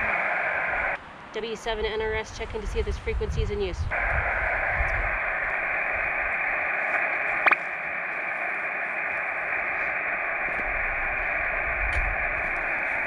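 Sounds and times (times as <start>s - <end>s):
radio static hiss: 0.0s - 13.0s
sharp radio blip: 3.9s - 13.0s.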